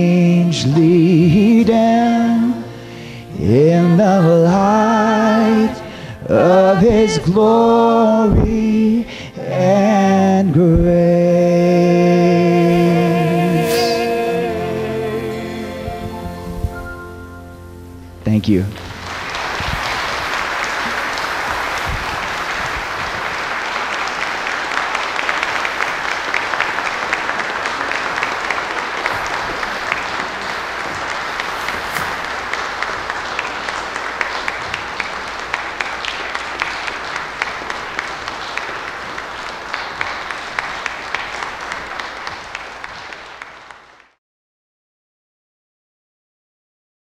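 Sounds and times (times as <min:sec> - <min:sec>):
audience applauding: 0:18.7 - 0:44.2.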